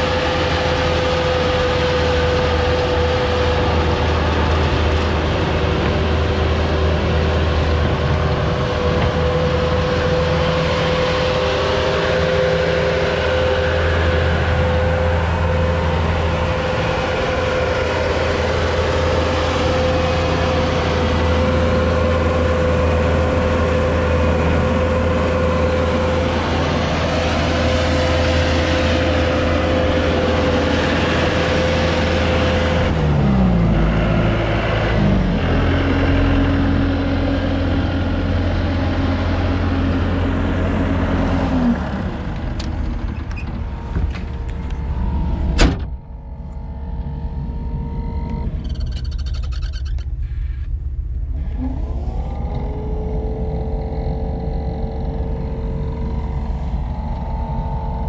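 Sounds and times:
diesel engine running with whine: 0.0 - 58.0.

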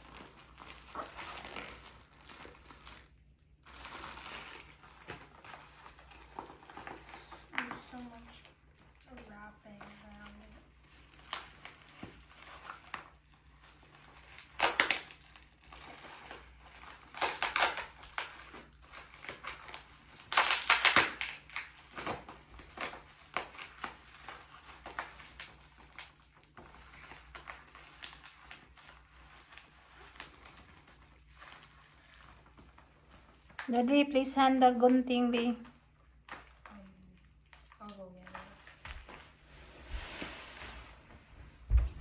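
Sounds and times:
plastic wrap crinkling: 0.0 - 42.0.

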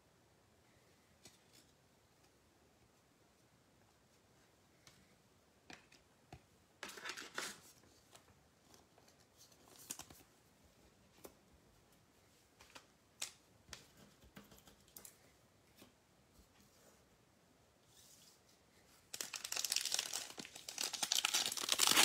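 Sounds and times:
cards scraping and rustling: 6.8 - 8.2.

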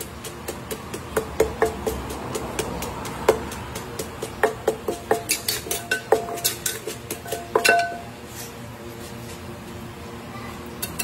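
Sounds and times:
pestle pounding in mortar: 0.0 - 8.1.

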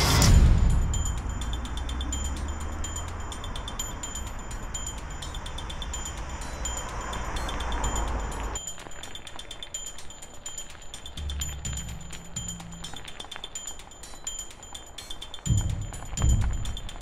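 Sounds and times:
background music hit: 0.0 - 8.6
short high chime-like notes: 0.0 - 17.0.

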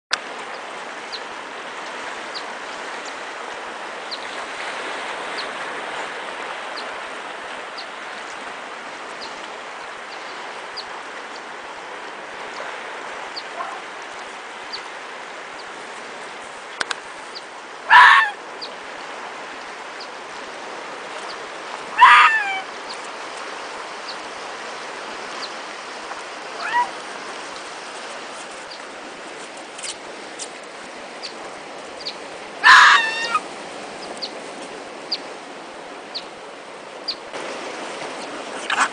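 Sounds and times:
foxes squealing yelps: 17.9 - 18.4, 21.9 - 22.7, 26.6 - 27.0, 32.6 - 33.4, 38.6 - 38.9.

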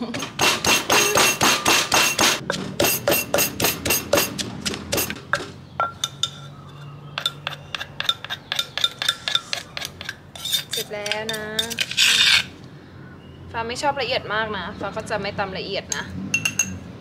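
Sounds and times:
pestle pounding in clay mortar: 0.1 - 6.2, 7.1 - 10.2
metal spoon scraping in mortar: 5.9 - 12.6.

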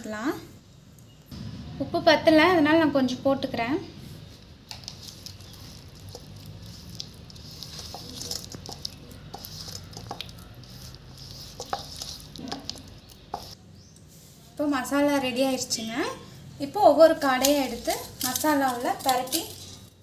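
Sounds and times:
hand mixing wet paste in bowl: 4.2 - 14.2.

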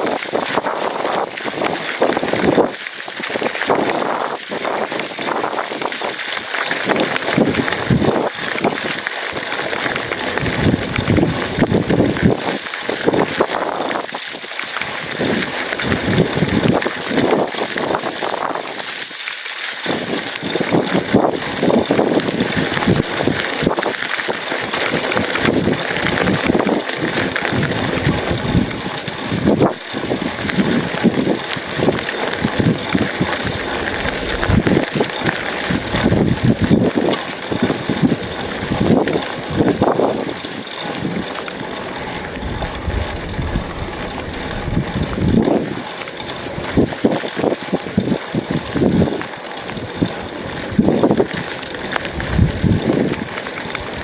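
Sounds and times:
wind buffeting microphone: 0.0 - 6.2, 6.8 - 14.2, 14.9 - 18.9, 19.9 - 54.0
bike rattling: 0.0 - 54.0
bike tyres hissing on gravel: 0.1 - 39.4.

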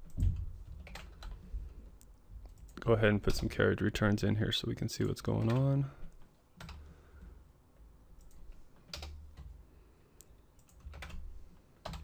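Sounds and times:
keyboard keystrokes: 10.6 - 11.2.

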